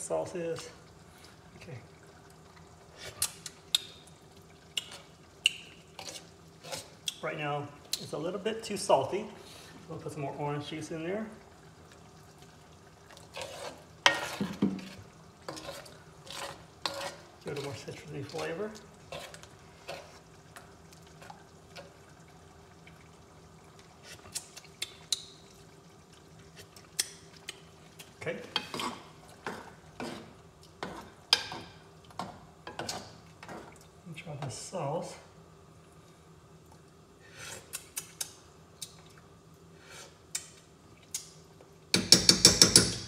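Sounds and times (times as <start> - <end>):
faint steady hum: 0.0 - 43.0
thick sauce popping in a pan: 24.3 - 25.6.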